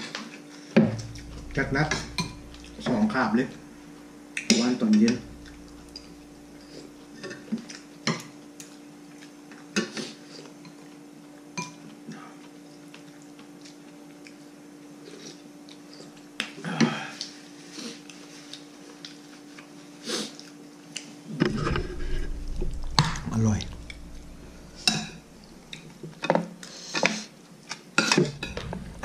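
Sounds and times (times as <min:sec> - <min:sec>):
faint steady hum: 0:00.5 - 0:09.6, 0:20.7 - 0:26.9, 0:28.2 - 0:29.0.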